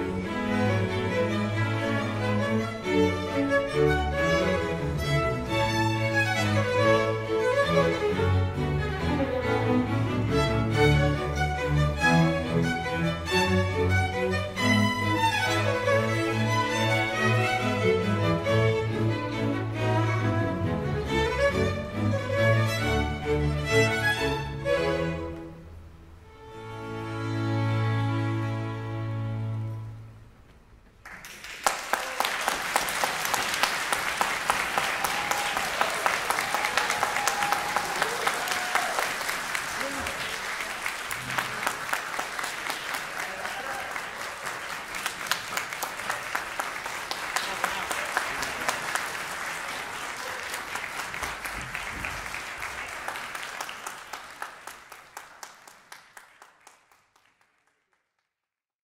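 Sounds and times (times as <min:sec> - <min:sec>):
audience applause: 0:31.0 - 0:58.2.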